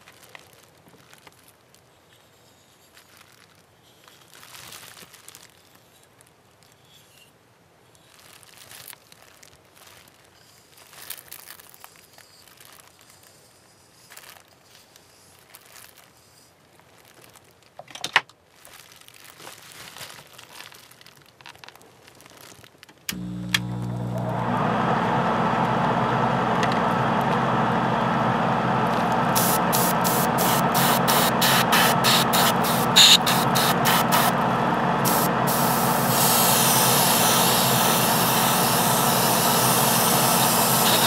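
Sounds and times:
hands rustling and crinkling: 0.0 - 23.1.

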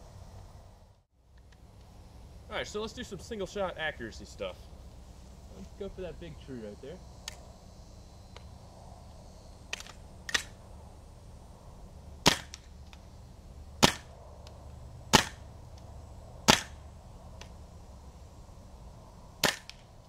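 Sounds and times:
airsoft gun shots: 9.7 - 10.6, 12.2 - 12.8, 13.8 - 14.1, 15.1 - 15.5, 16.4 - 16.8, 19.4 - 19.9.

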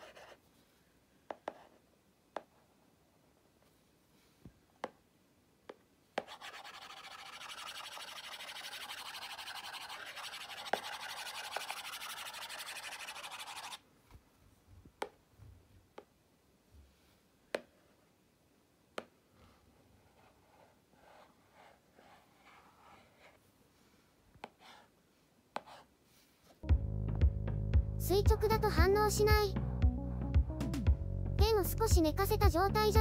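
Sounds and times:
stylus scrubbing on glass screen: 6.3 - 13.8.

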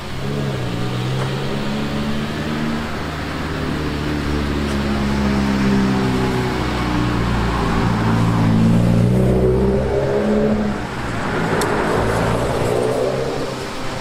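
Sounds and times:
engine humming: 0.0 - 14.0.

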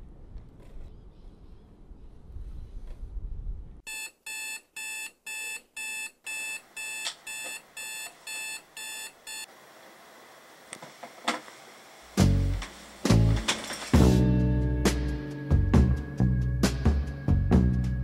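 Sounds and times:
electronic alarm beeping: 3.9 - 9.5.

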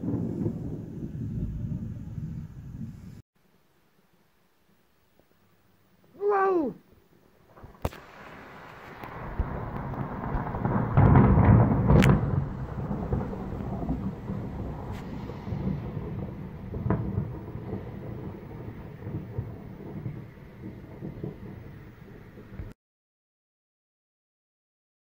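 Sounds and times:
sharp thunder crack: 0.0 - 3.2, 7.5 - 22.8
thunder rumbling: 0.0 - 3.2, 6.2 - 22.8.

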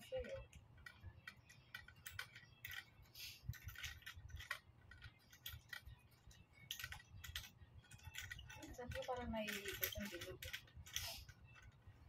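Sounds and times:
tripod parts clicking: 6.6 - 11.8.

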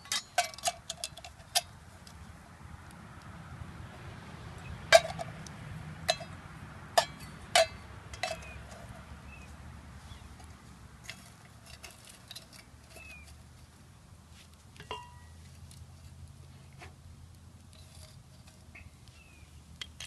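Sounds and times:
metal cups clinking: 0.0 - 1.6, 4.9 - 5.3, 6.1 - 6.4, 7.0 - 8.9, 14.8 - 15.4
distant highway traffic hum: 0.0 - 20.0.

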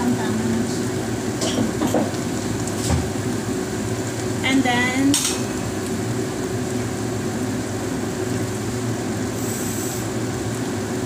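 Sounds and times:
gas stove rushing hum: 0.0 - 11.0
high hiss: 9.3 - 10.2.

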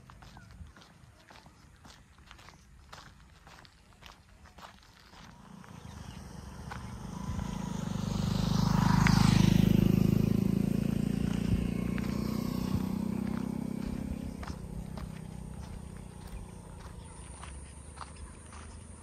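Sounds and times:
vehicle engine hum: 4.0 - 19.0.

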